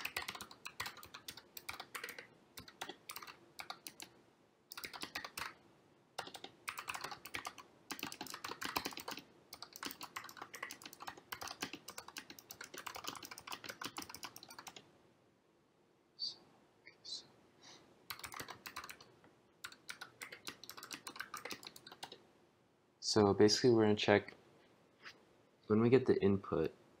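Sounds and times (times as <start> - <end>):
keyboard typing: 0.0 - 4.1, 4.7 - 5.6, 6.2 - 14.9, 18.1 - 22.2.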